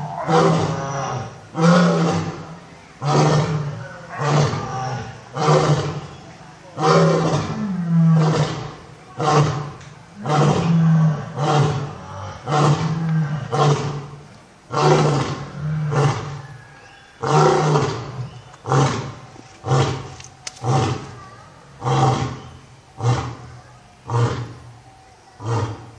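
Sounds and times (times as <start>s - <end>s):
lion roaring: 0.0s - 6.1s, 6.8s - 16.4s.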